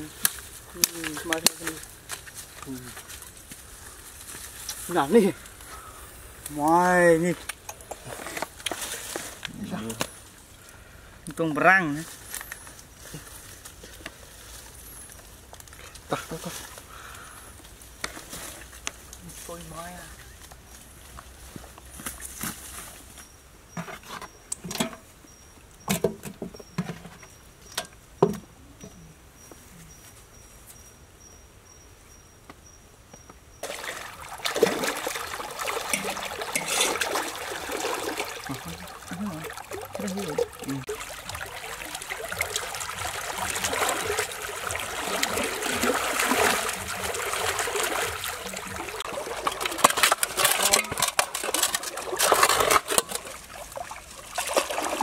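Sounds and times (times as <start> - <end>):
footsteps snapping twigs and leaves: 0.2 - 5.7
insect chirping: 23.0 - 49.3
hands splashing in stream water: 33.6 - 55.0.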